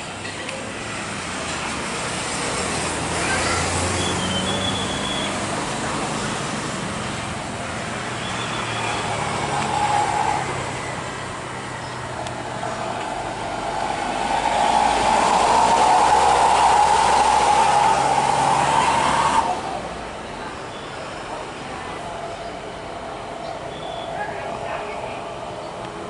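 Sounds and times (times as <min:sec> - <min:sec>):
jet engines rumbling with whine: 0:05.2 - 0:26.0.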